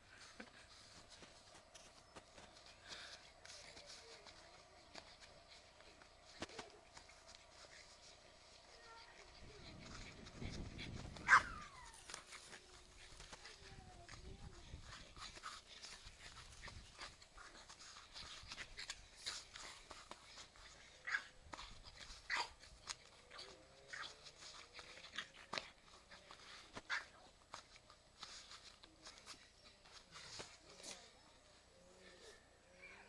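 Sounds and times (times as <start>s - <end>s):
puppy yapping: 11.2s - 12.0s.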